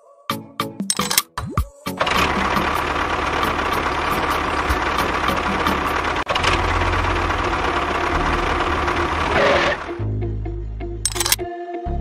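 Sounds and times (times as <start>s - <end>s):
motor running: 2.0s - 10.0s.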